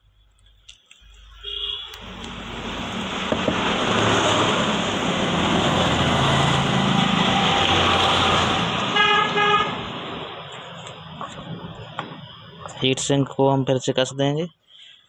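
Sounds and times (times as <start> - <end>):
short horn toot: 1.4 - 2.0.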